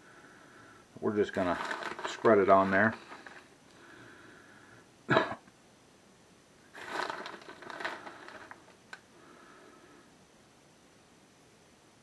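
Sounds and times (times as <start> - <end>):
plastic bag crinkling: 1.1 - 3.6, 6.7 - 9.0.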